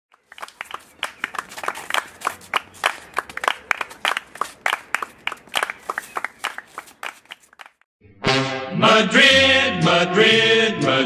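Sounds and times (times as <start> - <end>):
group clapping in a steady beat: 0.1 - 7.8.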